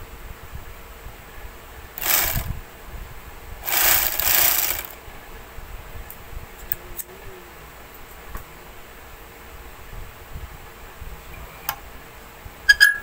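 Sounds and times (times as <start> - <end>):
overlock machine running: 2.0 - 2.6, 3.6 - 5.0.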